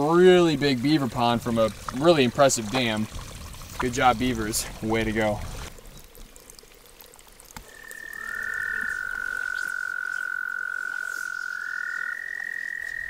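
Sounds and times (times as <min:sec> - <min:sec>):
high-pitched frog trill: 0:07.6 - 0:13.0
low-pitched frog trill: 0:07.6 - 0:13.0.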